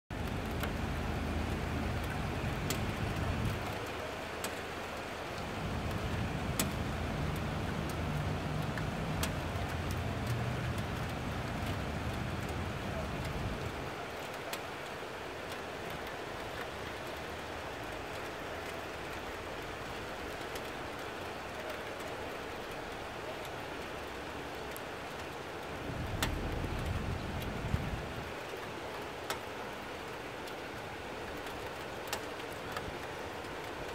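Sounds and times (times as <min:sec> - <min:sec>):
rain hissing: 0:00.1 - 0:33.9
sharp drip clicks: 0:00.2 - 0:13.6, 0:26.0 - 0:27.8, 0:30.4 - 0:33.9
low rumble: 0:25.9 - 0:28.1.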